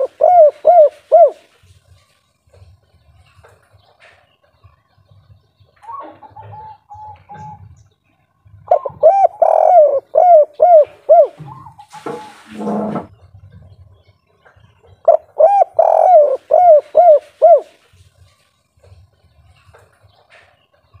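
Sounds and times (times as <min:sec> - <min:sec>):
dove cooing: 0:00.0 - 0:01.6, 0:05.8 - 0:07.8, 0:08.6 - 0:12.9, 0:15.0 - 0:17.8.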